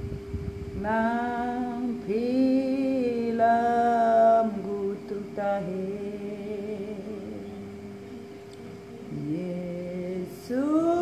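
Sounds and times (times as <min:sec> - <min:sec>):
woman singing a hymn unaccompanied: 0:00.8 - 0:11.0.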